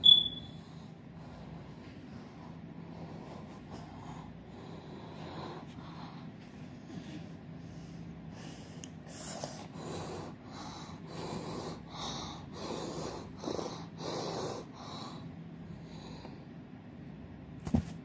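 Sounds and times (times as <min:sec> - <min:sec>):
person breathing heavily: 0:00.6 - 0:16.6.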